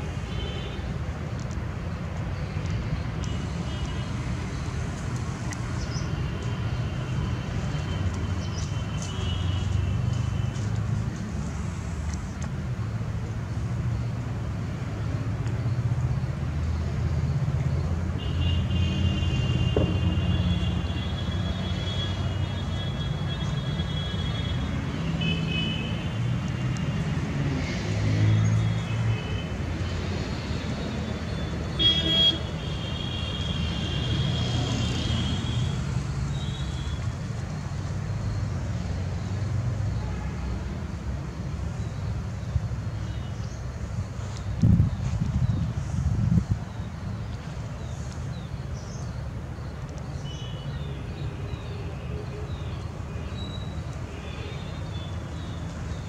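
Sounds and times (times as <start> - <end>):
road traffic rumble: 0.0 - 56.0
vehicle horn blasts: 31.8 - 34.2.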